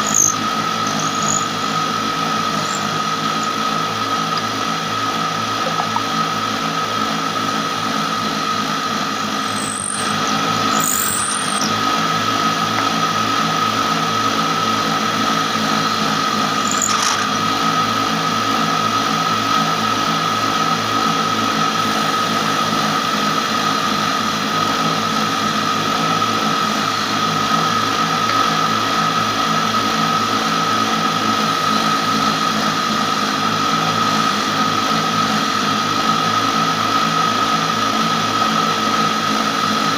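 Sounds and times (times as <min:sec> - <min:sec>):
electric motor whining: 0:00.0 - 0:18.9.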